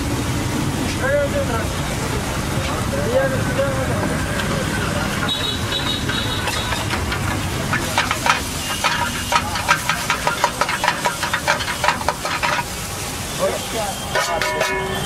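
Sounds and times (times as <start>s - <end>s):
egg sizzling: 4.7s - 13.4s
metal spatula scraping a wok: 5.1s - 12.9s, 14.1s - 15.0s.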